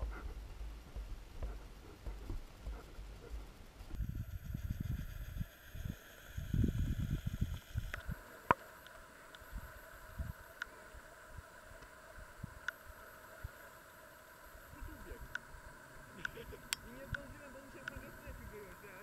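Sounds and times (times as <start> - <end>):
wind buffeting microphone: 3.9 - 8.2, 9.5 - 10.4
faint ticks: 7.4 - 9.5, 10.5 - 10.8, 12.6 - 12.8, 16.2 - 18.4.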